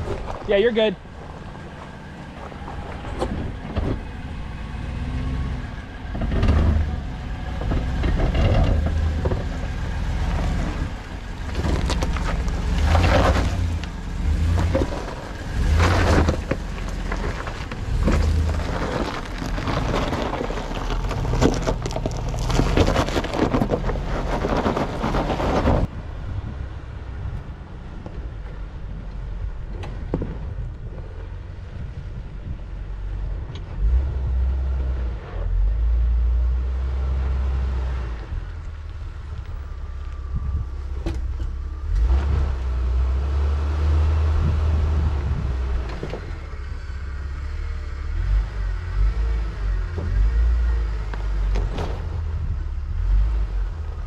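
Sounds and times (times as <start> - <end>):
tyres crunching over rock and gravel: 0.0 - 5.4, 6.2 - 25.9
vehicle engine rumble: 0.0 - 54.0.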